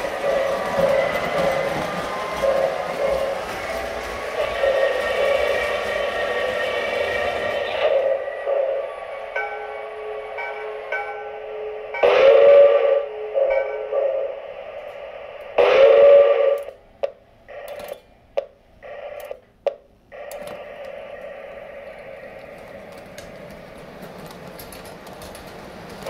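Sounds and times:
model train chime whistle: 4.4s - 14.4s, 15.6s - 16.8s.

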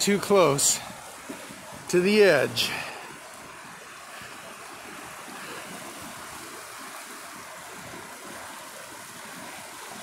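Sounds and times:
flood water rushing: 0.0s - 10.0s.

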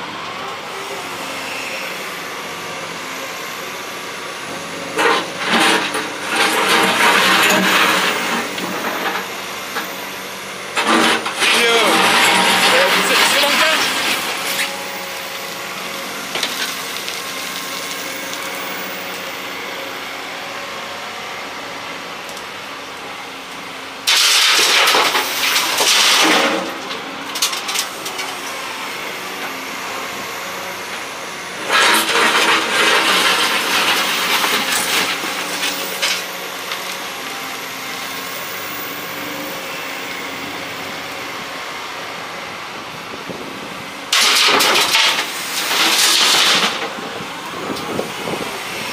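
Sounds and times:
diesel engine running: 0.0s - 48.9s
soil and rubble clattering: 5.0s - 9.3s, 10.8s - 14.7s, 24.1s - 28.3s, 31.6s - 36.9s, 44.1s - 47.0s.

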